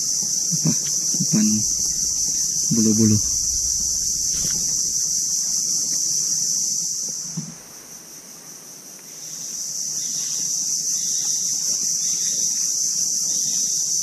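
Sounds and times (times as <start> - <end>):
insect chorus: 0.0 - 14.0.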